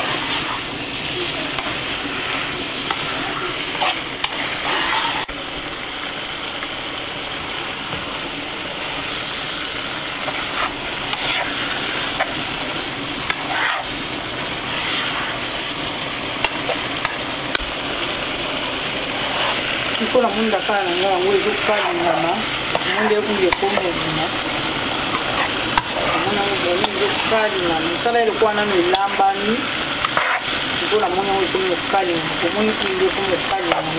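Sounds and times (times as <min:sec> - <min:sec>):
spatula stirring and scraping: 0:00.0 - 0:05.3, 0:10.2 - 0:15.6, 0:19.0 - 0:29.3, 0:30.0 - 0:31.3
fish sizzling in a pan: 0:00.0 - 0:33.9.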